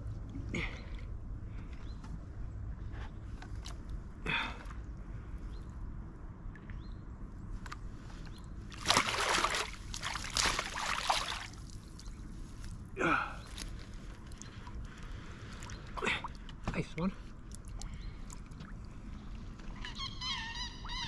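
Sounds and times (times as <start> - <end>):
fish thrashing and water splashing: 8.7 - 12.1.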